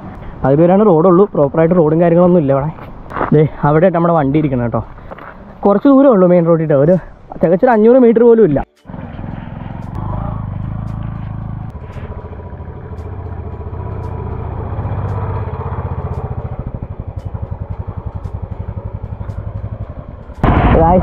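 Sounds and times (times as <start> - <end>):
vehicle engine running: 8.6 - 21.0.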